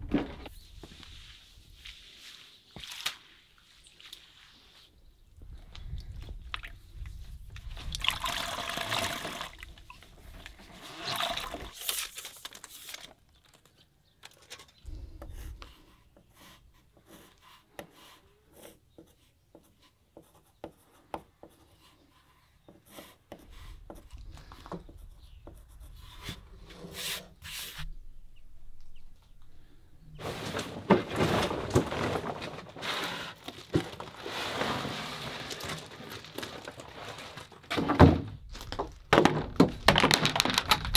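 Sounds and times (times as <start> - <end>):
water sloshing in mop bucket: 7.9 - 11.8
wooden panels scraping and knocking: 30.2 - 40.9.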